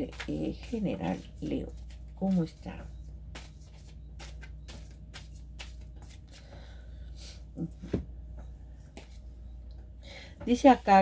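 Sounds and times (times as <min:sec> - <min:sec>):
cards being shuffled: 0:00.0 - 0:02.1, 0:03.3 - 0:06.4
steady low hum: 0:00.0 - 0:11.0.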